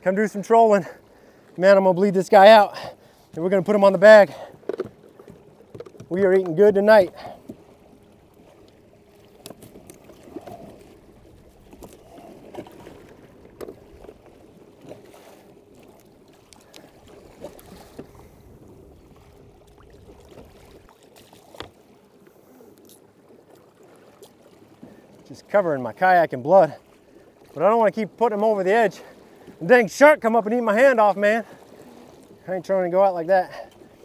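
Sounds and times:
water lapping against hull: 0:00.0 - 0:34.0
small knocks and splashes: 0:04.4 - 0:18.3, 0:19.1 - 0:22.0.

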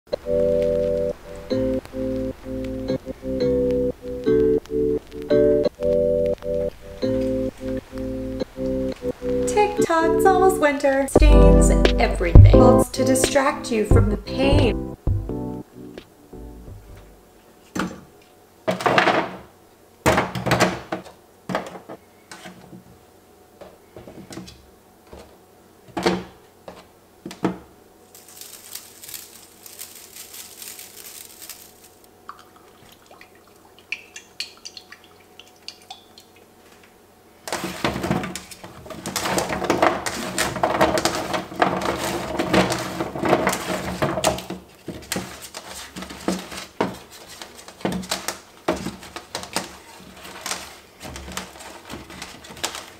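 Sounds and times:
vegetables clattering on a metal pan: 0:28.2 - 0:31.9, 0:37.5 - 0:45.3.

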